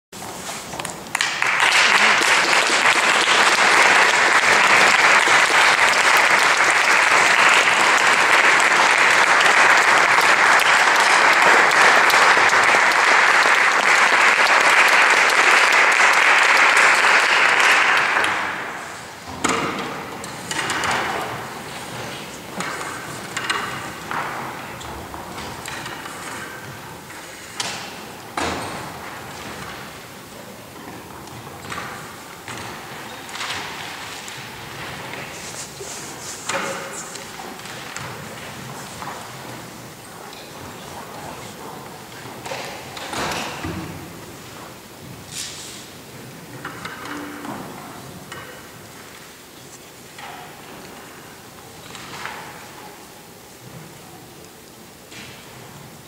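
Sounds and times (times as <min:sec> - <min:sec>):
audience applauding: 0:01.1 - 0:19.3.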